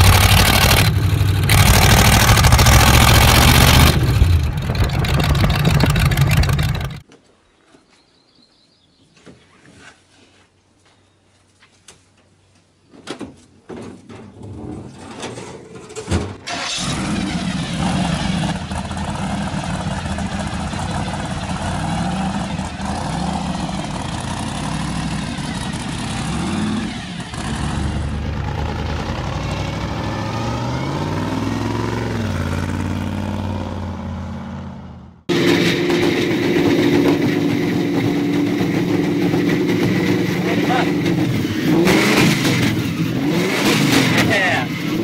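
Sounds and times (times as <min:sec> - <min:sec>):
hot rod engine idling: 0:00.0 - 0:07.0, 0:18.6 - 0:25.9
supercharged engine revving: 0:00.0 - 0:07.0, 0:16.5 - 0:45.0.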